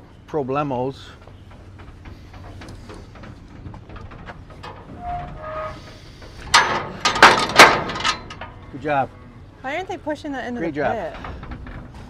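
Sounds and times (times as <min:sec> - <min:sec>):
low metallic rumble: 0:00.0 - 0:12.0
cattle banging in trailer: 0:01.6 - 0:09.0.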